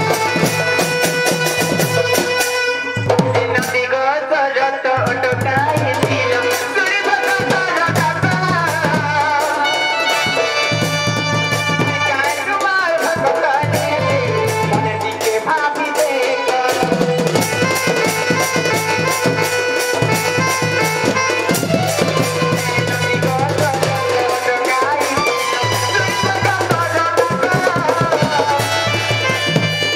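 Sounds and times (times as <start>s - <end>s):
barrel drum beat: 0.0s - 3.9s, 5.0s - 29.9s
person singing amplified: 0.0s - 29.8s.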